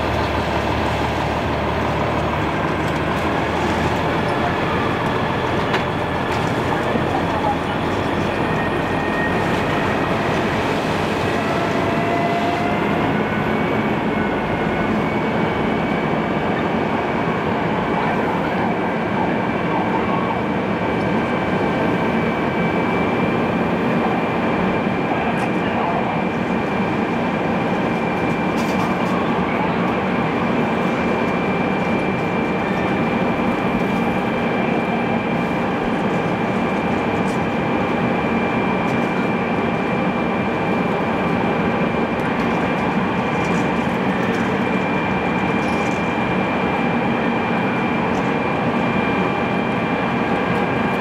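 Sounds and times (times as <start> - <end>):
diesel engine and pump rushing: 0.0 - 51.0.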